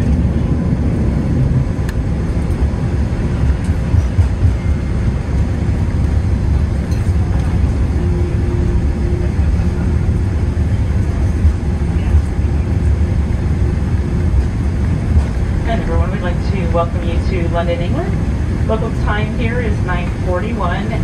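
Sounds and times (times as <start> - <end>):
airplane cabin rumble: 0.0 - 21.0.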